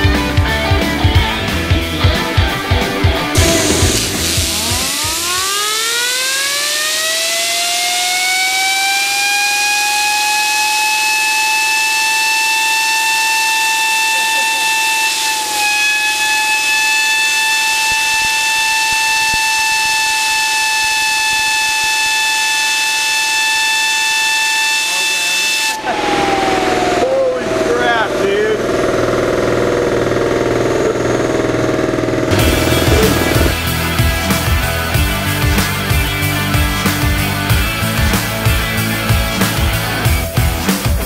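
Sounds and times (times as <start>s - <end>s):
fidget spinner whine: 3.2s - 34.6s
compressed air hiss: 3.4s - 6.1s.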